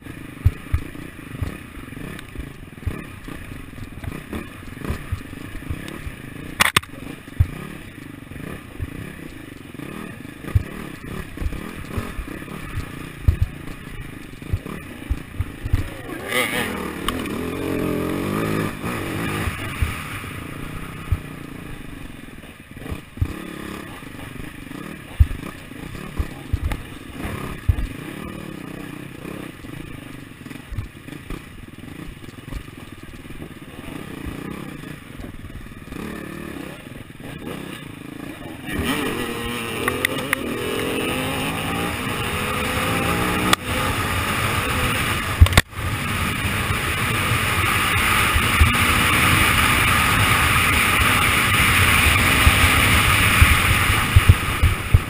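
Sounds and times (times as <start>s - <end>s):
motorcycle engine running: 0.0s - 55.0s
bike knocks and clatter: 2.4s - 7.6s, 10.4s - 16.0s.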